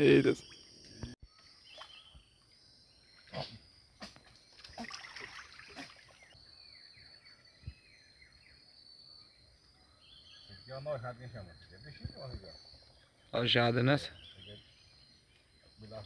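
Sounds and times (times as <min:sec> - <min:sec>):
insect drone: 0:00.0 - 0:16.0
faint water splashes: 0:04.6 - 0:06.3.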